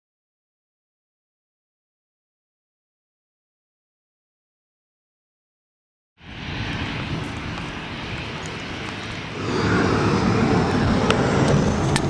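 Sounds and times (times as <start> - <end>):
jet airliner engines rumbling: 6.2 - 12.0.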